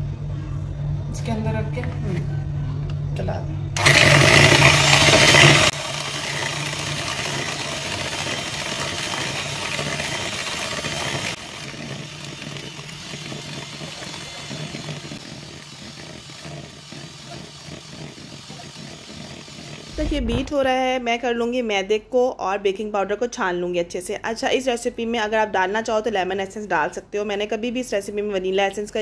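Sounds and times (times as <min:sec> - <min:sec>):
electric hand mixer running: 0:03.8 - 0:20.0.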